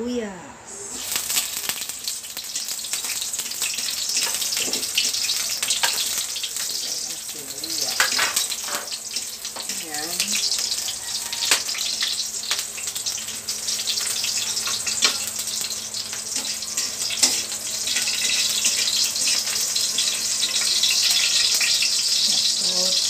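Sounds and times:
onions sizzling in oil: 0.7 - 23.0
metal tongs clicking on pan: 4.2 - 6.8, 7.7 - 10.5, 11.5 - 12.7, 16.4 - 18.4.

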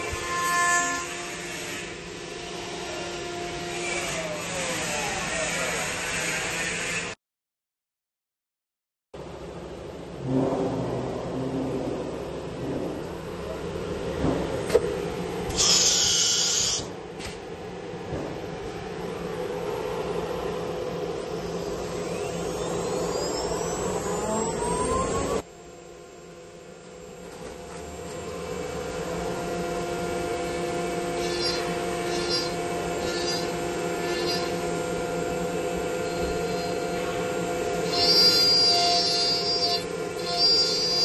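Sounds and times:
electric spindle whine: 18.9 - 41.0.

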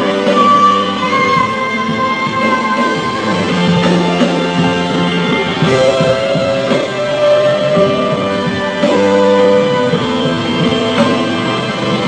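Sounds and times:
worship band with guitar: 0.0 - 12.0.

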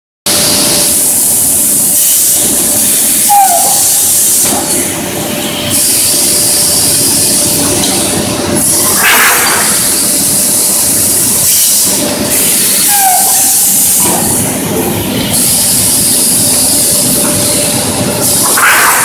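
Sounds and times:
grinding machine hissing and humming: 0.3 - 19.0
machine squeal: 1.9 - 7.2, 11.4 - 14.5.

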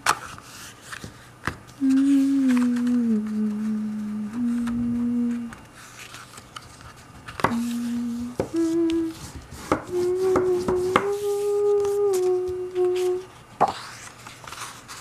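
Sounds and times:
card stock being folded: 0.0 - 15.0
person humming: 1.8 - 5.6, 7.4 - 13.4
paper rustles: 5.6 - 8.0, 8.6 - 15.0.

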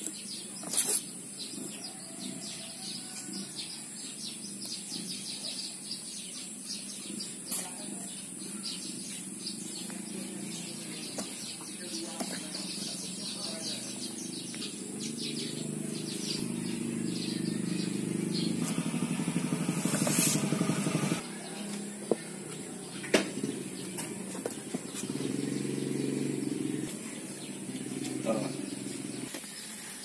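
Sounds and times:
motorcycle engine running: 13.0 - 22.6, 23.2 - 29.4.

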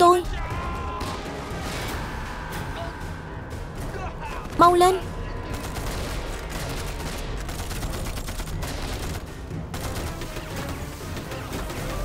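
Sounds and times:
rifle and machine-gun fire: 4.4 - 12.0.

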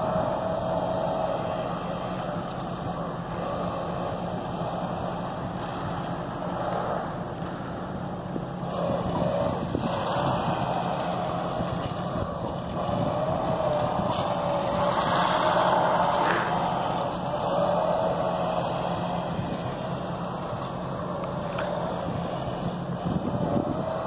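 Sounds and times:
electric motor whine: 0.0 - 7.4, 8.6 - 24.0.

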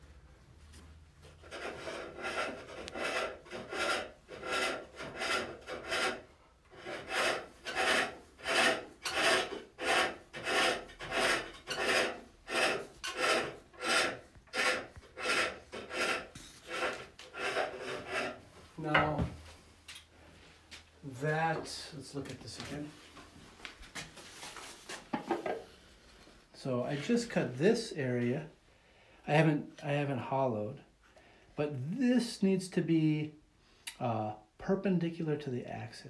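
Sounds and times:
lathe tool shaving wood: 1.5 - 6.2, 6.8 - 18.4.

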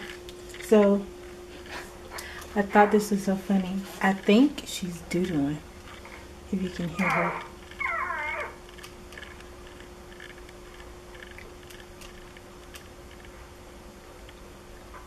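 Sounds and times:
low steady hum: 0.0 - 15.0
baby whimpering: 6.8 - 8.6
baby grunting: 6.9 - 8.6.

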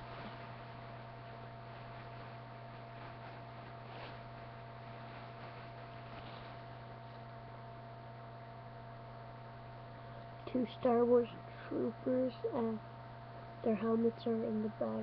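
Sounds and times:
faint rustle: 0.0 - 7.4
constant hiss: 0.0 - 15.0
faint high whine: 0.0 - 15.0
low electrical hum: 0.0 - 15.0.

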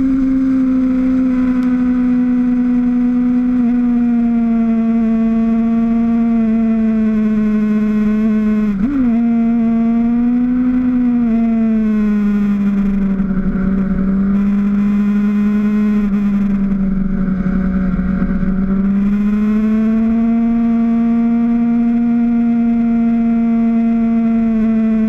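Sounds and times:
low wind noise: 0.0 - 25.0
motorcycle engine at high revs: 0.0 - 25.0.

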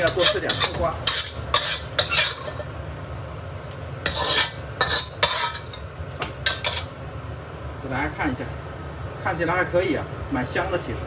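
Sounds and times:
chopsticks scraping a ceramic plate: 0.0 - 2.7, 4.0 - 5.9.

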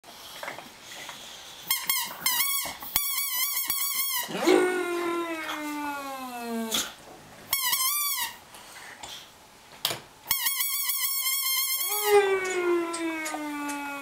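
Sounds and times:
dog whining: 4.1 - 7.0, 11.7 - 14.0
dog howling: 4.3 - 6.8, 11.8 - 14.0.

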